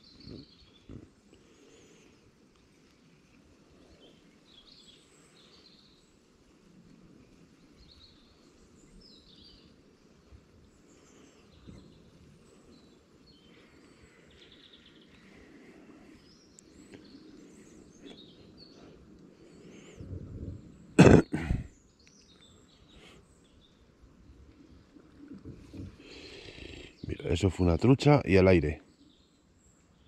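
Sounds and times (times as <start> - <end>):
faint bird chirps: 7.6 - 30.0.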